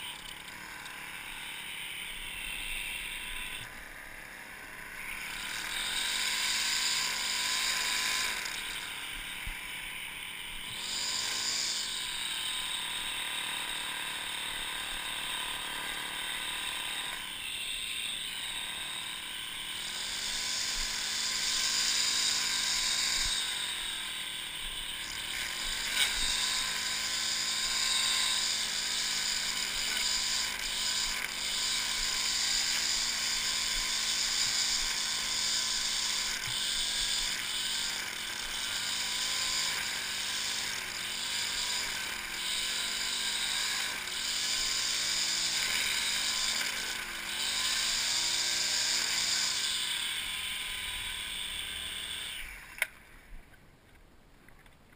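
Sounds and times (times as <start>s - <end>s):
string trimmer running: 0.0s - 53.5s.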